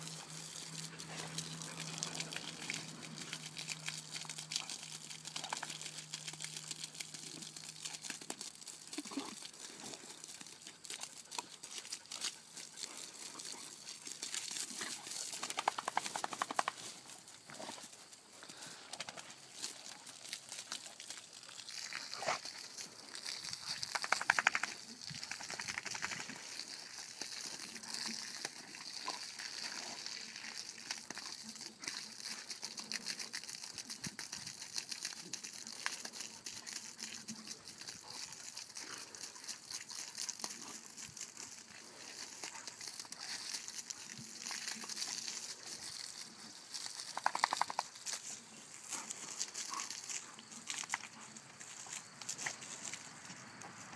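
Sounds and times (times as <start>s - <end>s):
water spraying from garden hose: 0.0s - 53.9s
dogs snapping: 15.4s - 16.8s.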